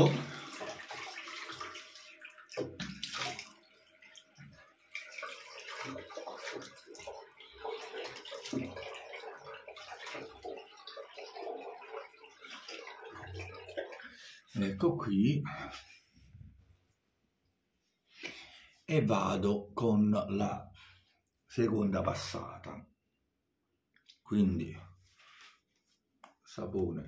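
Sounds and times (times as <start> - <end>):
water splashing on face: 0.0 - 14.3.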